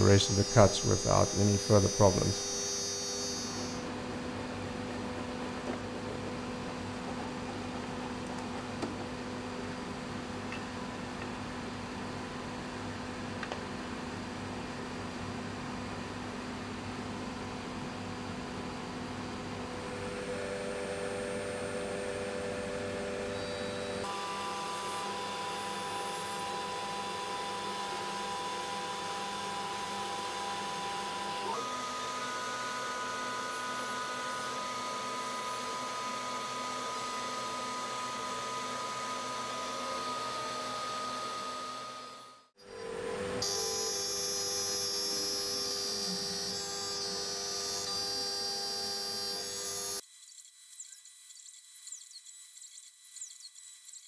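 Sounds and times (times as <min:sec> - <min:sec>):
router spindle whine cutting wood: 0:00.0 - 0:08.1, 0:19.8 - 0:54.0.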